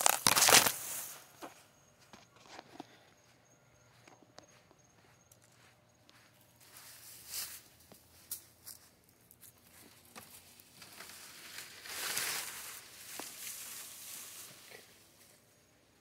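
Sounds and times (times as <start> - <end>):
leaves rustling and swishing: 0.0 - 1.2, 10.0 - 15.3.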